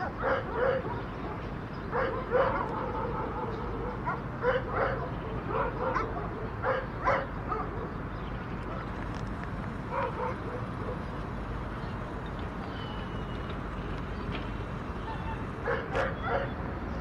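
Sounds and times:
dogs barking: 0.0 - 9.0, 9.9 - 11.2, 15.0 - 16.7.

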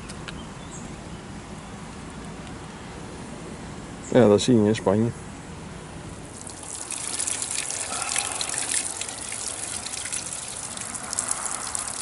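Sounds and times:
fountain water splashing into basin: 6.3 - 12.0.

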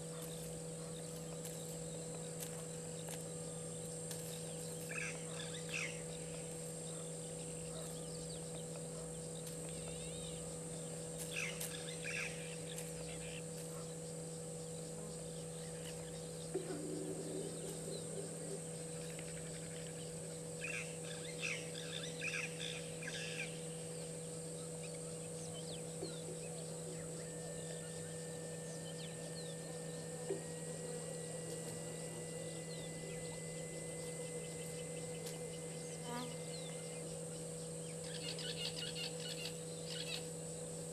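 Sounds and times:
high insect drone: 0.0 - 40.9
low hum: 0.0 - 40.9
thin steady tone: 0.0 - 40.9
bird chirps: 14.6 - 40.3.

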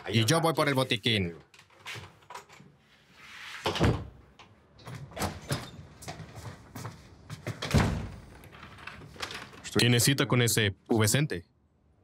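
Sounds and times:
door shutting with heavy thud: 7.6 - 8.3.

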